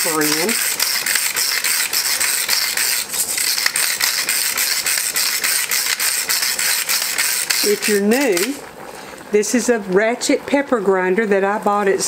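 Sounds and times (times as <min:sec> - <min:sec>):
pepper grinder ratchet clicking: 0:00.0 - 0:08.6.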